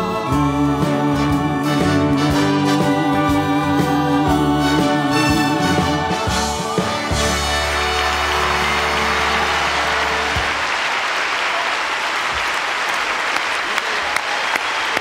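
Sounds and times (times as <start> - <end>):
orchestra final chord: 0.4 - 10.8
audience applauding: 5.1 - 15.0.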